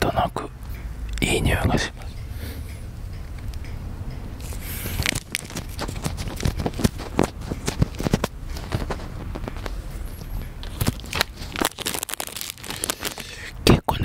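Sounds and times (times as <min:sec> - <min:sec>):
plastic packaging crinkling: 0:04.9 - 0:09.8, 0:10.6 - 0:13.5.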